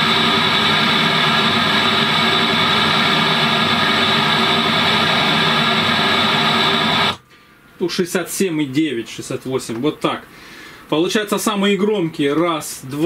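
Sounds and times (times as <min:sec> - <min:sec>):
speaker playing noise test signal: 0:00.0 - 0:07.2.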